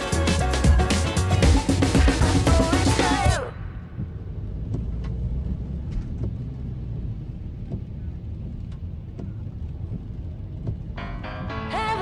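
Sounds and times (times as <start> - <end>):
car rumbling on wet road: 3.7 - 11.6.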